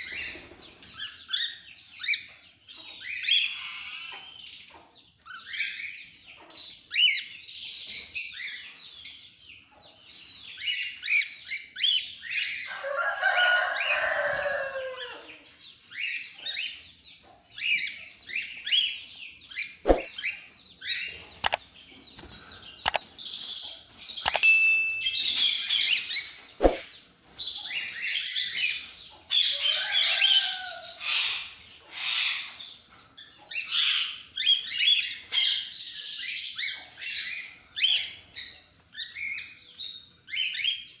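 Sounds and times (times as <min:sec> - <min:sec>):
sharp clicks: 0:21.4 - 0:21.6, 0:22.9 - 0:23.1, 0:24.2 - 0:24.7.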